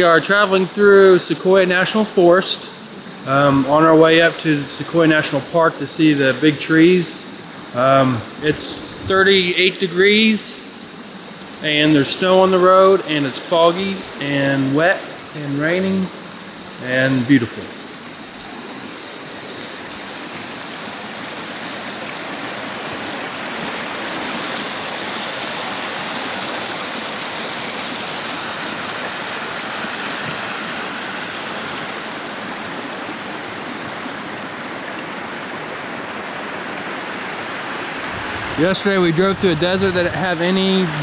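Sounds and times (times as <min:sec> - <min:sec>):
stream rushing over rocks: 0:00.0 - 0:41.0.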